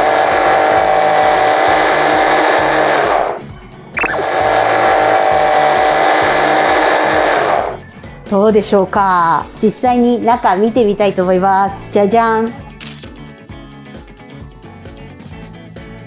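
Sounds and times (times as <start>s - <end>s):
hand blender motor running: 0.0s - 3.4s, 4.0s - 7.8s.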